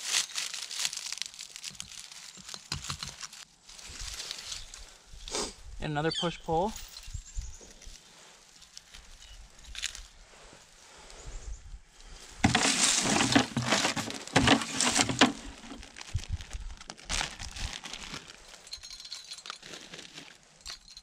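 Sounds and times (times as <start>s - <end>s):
plastic bag crinkling: 0.0s - 3.5s, 12.4s - 20.4s.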